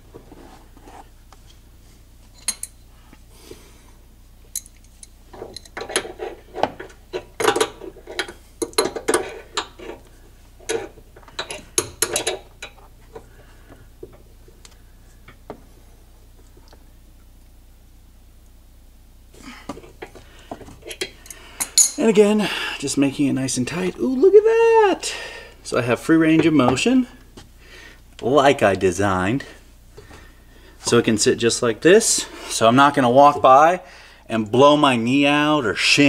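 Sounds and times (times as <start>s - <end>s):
metal hook and wrench clinking: 2.4s - 2.8s, 4.5s - 6.0s, 21.0s - 22.0s.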